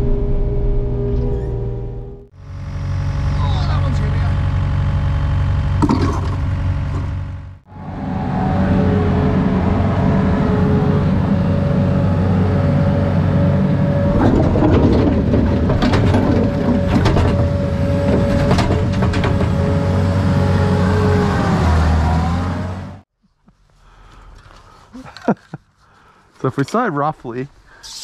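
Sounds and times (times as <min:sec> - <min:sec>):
steady whine: 0:00.0 - 0:21.0
diesel engine running: 0:00.0 - 0:23.0
metallic clanks and knocks: 0:14.1 - 0:19.9.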